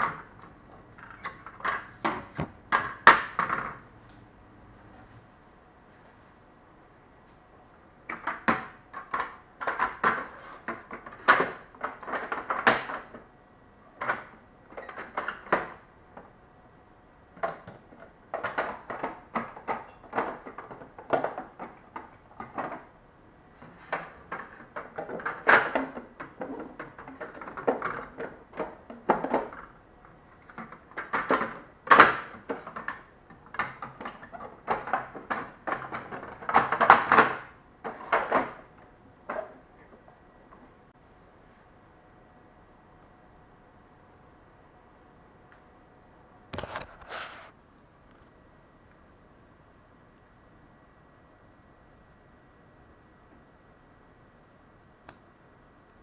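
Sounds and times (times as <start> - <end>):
plastic parts clicking and knocking: 0.0 - 3.8, 8.1 - 13.3, 14.0 - 16.3, 17.4 - 22.9, 23.6 - 40.7.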